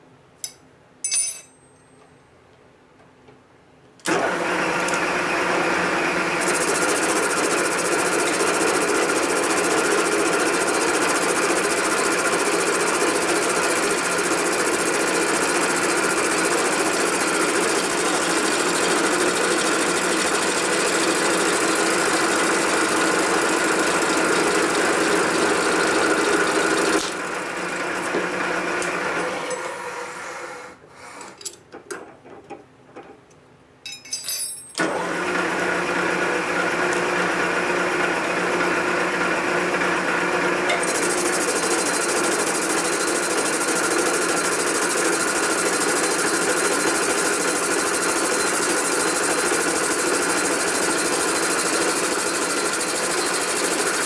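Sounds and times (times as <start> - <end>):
milling machine cutting metal: 11.8 - 29.8.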